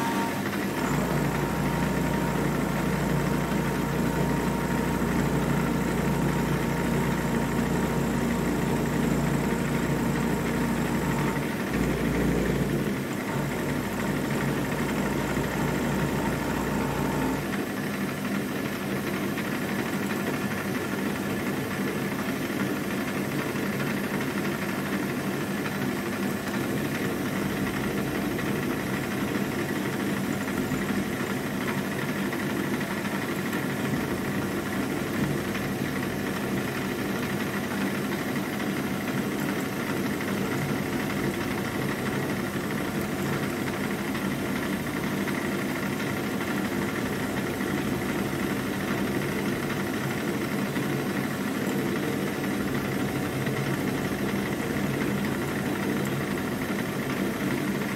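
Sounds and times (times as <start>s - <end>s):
milling machine cutting metal: 0.0s - 17.5s.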